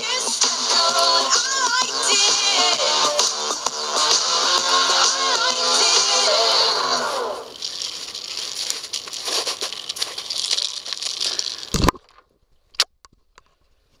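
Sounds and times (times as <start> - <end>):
footsteps crunching in snow: 6.4 - 11.8
clothing rustle: 7.5 - 11.7.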